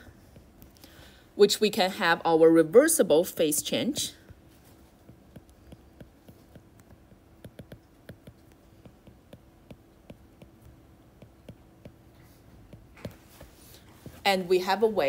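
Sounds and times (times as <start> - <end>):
faint steady hum: 0.0 - 15.0
stylus clicking on tablet screen: 3.9 - 13.2.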